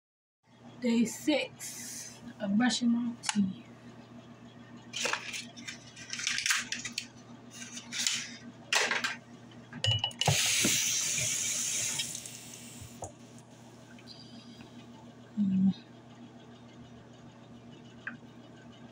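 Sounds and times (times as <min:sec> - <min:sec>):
sink tap running: 0:10.1 - 0:13.1.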